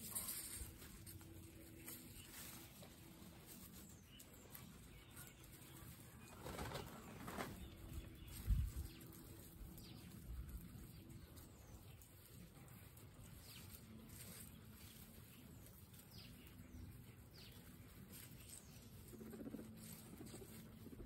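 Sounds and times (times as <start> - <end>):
grass and hay rustling: 0.0 - 21.0
guinea pigs munching grass: 0.0 - 21.0.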